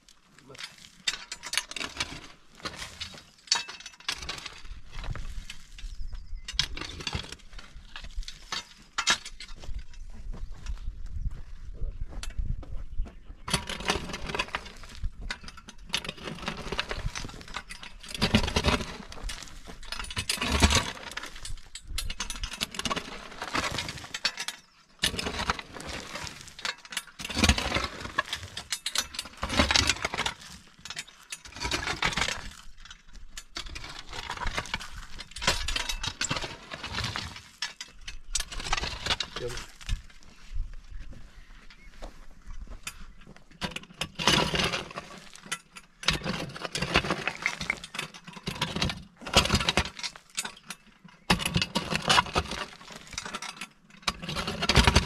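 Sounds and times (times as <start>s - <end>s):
stones clattering: 13.5s - 40.2s, 42.7s - 55.0s
spade digging into rocky soil: 13.6s - 32.8s, 33.4s - 40.2s, 43.7s - 55.0s.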